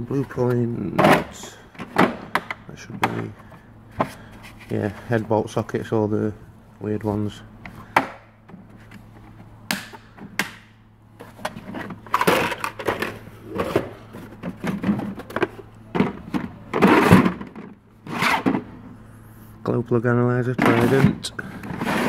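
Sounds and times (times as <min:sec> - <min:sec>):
cases clattering in metal drawer: 0:00.9 - 0:03.3, 0:11.4 - 0:18.7, 0:20.6 - 0:22.0.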